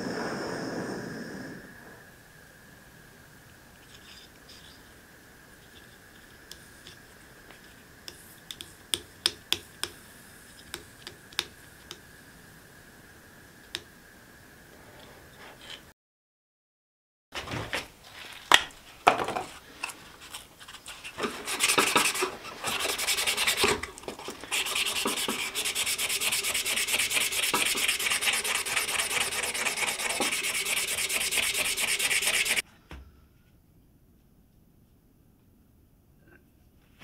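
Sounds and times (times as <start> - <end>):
sanding wooden handle: 20.9 - 32.6.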